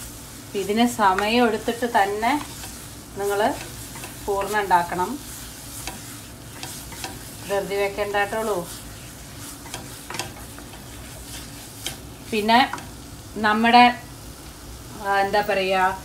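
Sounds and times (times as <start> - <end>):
low sizzle: 0.0 - 16.0
voice: 0.6 - 2.5, 3.2 - 3.6, 4.3 - 5.2, 7.5 - 8.7, 12.3 - 12.8, 13.4 - 14.0, 15.0 - 16.0
wooden spatula scraping a pan: 0.6 - 13.0
spatula clicking against pan: 5.8 - 7.3, 9.6 - 10.9.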